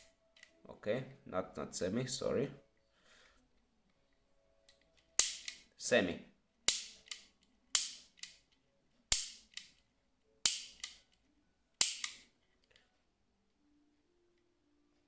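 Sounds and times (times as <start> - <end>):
trigger mechanism clicking: 4.6 - 5.7, 6.7 - 9.8, 10.4 - 11.2.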